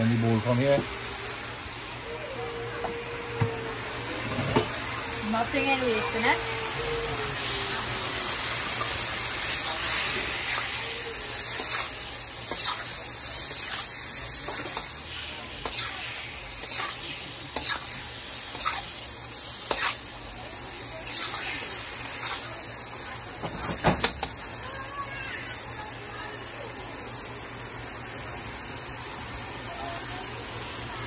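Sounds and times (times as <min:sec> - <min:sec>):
onions sizzling in hot oil: 0:00.0 - 0:31.0.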